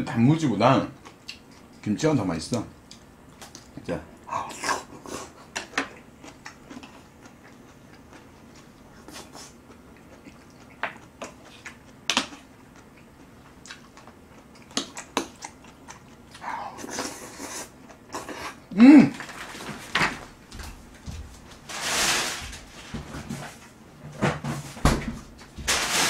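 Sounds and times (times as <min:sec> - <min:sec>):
chewing and mouth noises: 0:00.9 - 0:01.9, 0:04.4 - 0:18.7.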